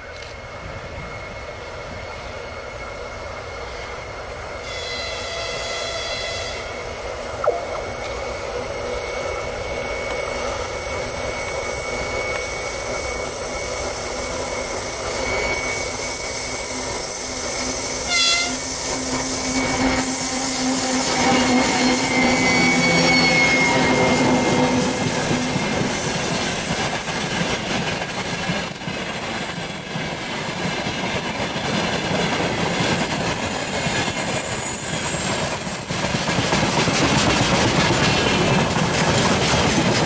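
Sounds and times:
train horn: 4.6s - 7.0s, 18.0s - 18.8s.

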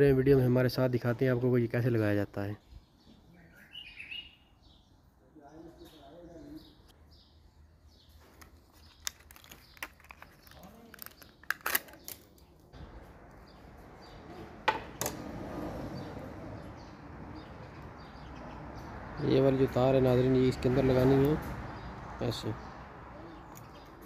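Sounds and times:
plastic packaging crinkling and clicking: 8.3s - 12.7s.

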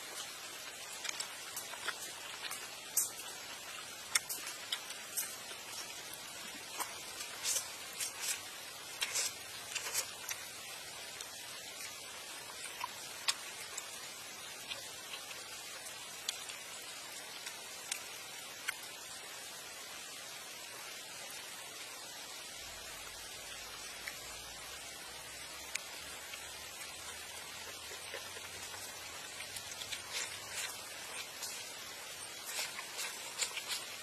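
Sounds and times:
wet chewing and smacking: 0.0s - 18.9s, 25.7s - 34.0s
background hiss: 0.0s - 34.0s.

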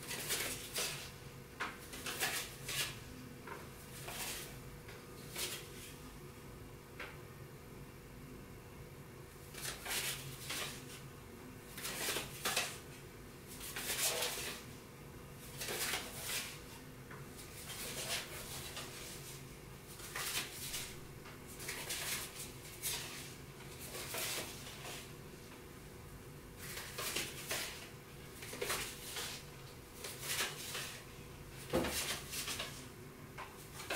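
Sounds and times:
low room hum: 0.0s - 33.9s.

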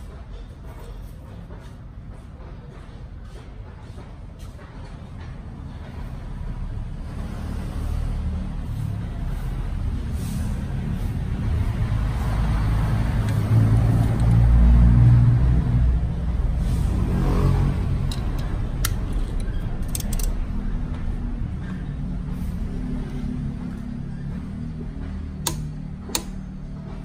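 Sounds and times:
vehicle engine rumbling: 0.0s - 27.0s
sharp clicks: 18.1s - 20.4s, 25.4s - 26.4s.

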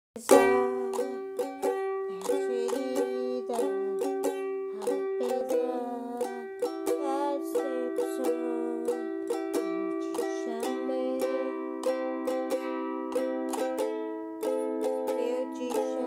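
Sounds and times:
ukulele strumming: 0.2s - 16.0s.

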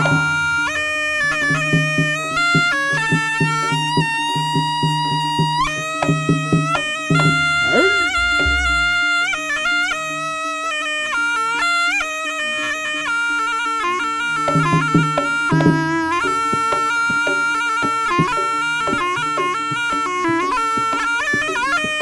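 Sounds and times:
steady percussion strokes: 7.2s - 9.2s
reedy shawm long notes: 7.2s - 9.3s.

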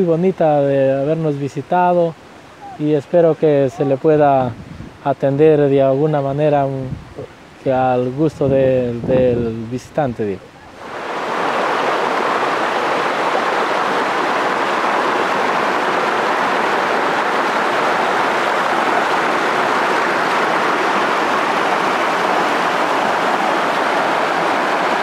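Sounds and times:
water rushing over boulders: 10.4s - 25.0s.

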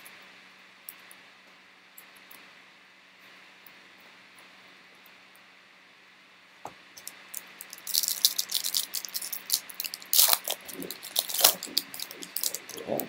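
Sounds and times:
foil wrapper tearing: 7.0s - 12.8s
foil wrapper crinkling: 7.0s - 13.0s.

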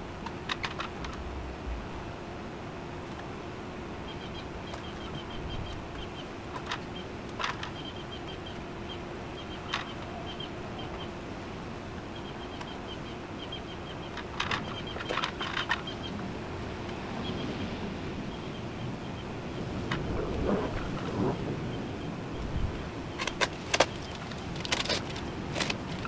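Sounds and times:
sharp clicks and knocks: 23.2s - 26.0s.

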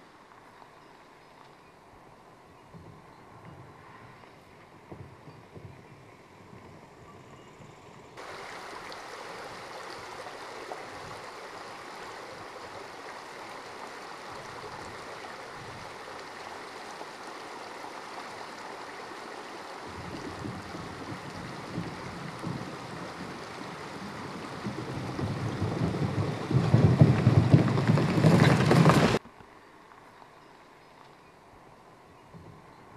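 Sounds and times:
stream rushing: 8.2s - 29.2s
car crossing wooden plank bridge: 19.9s - 29.2s
car driving over gravel: 19.9s - 29.2s.

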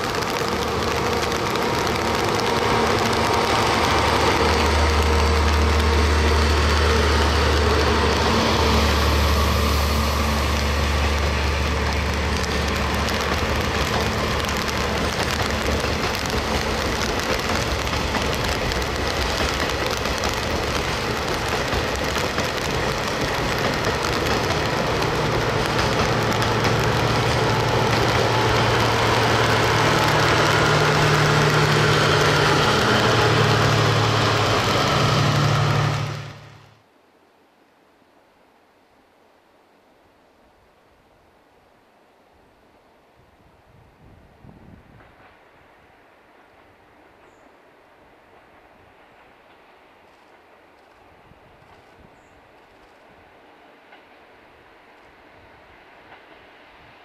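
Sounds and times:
diesel train engine drone: 0.0s - 36.9s
steady rain hiss: 0.0s - 57.0s.

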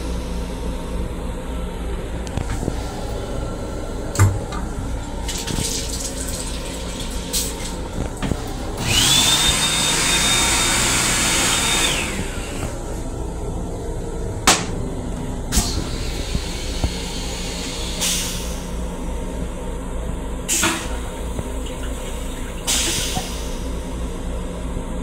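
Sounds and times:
moving train rumble: 0.0s - 9.4s
motor-driven whoosh with whine: 0.0s - 20.5s
sink faucet running: 5.2s - 7.9s.

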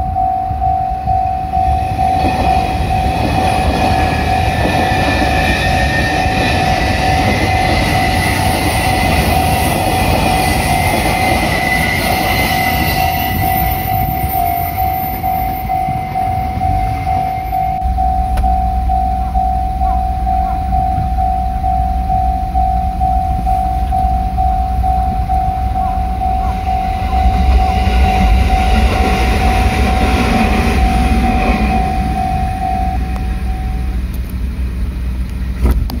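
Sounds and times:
level-crossing alarm dinging: 0.0s - 34.1s
rushing noise: 0.0s - 35.8s
low rumble: 0.0s - 36.0s.

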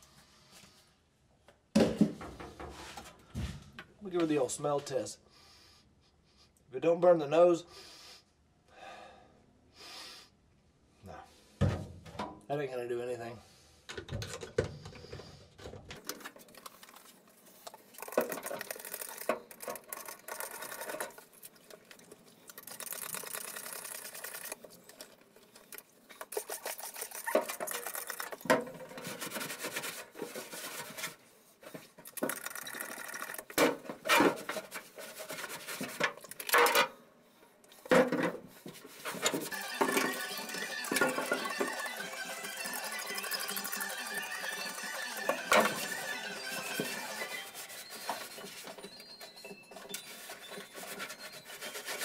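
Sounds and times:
rubbing on metal: 44.4s - 52.0s.

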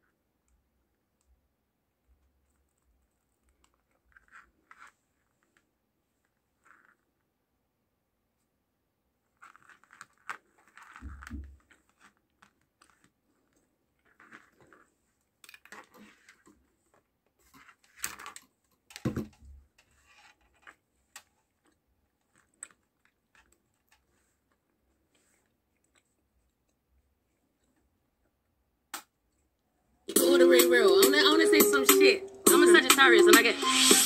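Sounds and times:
plastic adapter and cables handling: 9.4s - 24.6s.

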